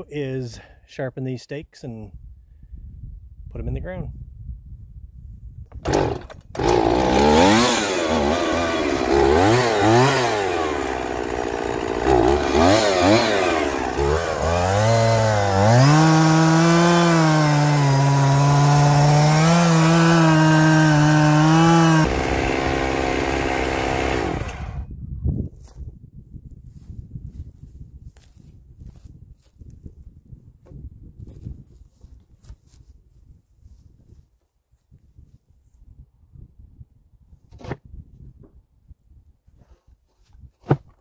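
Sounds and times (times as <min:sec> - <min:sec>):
chainsaw revving and cutting wood: 0:05.8 - 0:24.8.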